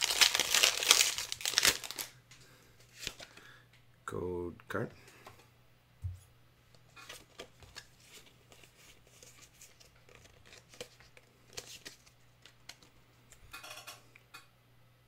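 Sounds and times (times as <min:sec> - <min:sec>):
foil wrapper crinkling: 0:00.0 - 0:02.1
cards being handled: 0:02.8 - 0:03.5, 0:06.8 - 0:13.0.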